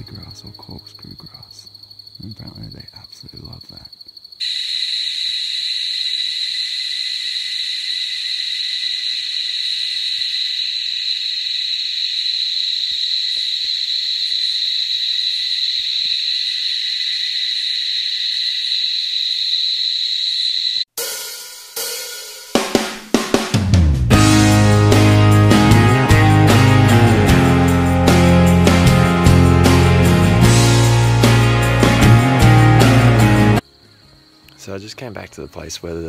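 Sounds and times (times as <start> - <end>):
insect chorus drone: 0.0 - 20.9, 33.6 - 36.0
music with drum hits: 21.0 - 33.6.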